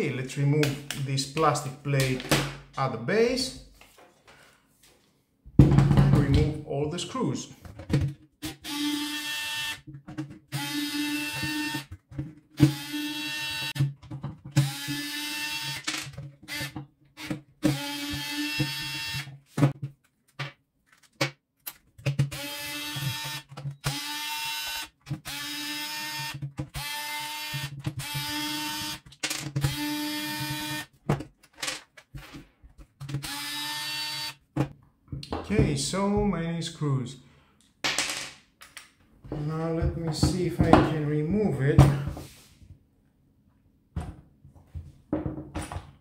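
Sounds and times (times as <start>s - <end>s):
electric screwdriver whirring: 8.5s - 9.8s, 10.5s - 11.9s, 12.6s - 13.8s, 14.6s - 15.8s, 16.5s - 19.3s, 22.3s - 29.0s, 29.6s - 30.9s, 33.1s - 34.4s
clicks of screws and parts: 38.6s - 39.0s.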